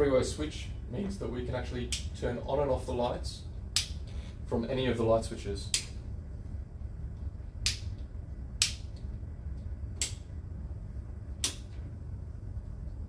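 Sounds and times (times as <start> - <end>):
light switches clicking: 1.9 - 2.1, 3.7 - 4.0, 5.7 - 6.0, 7.6 - 9.1, 10.0 - 10.3, 11.4 - 11.7.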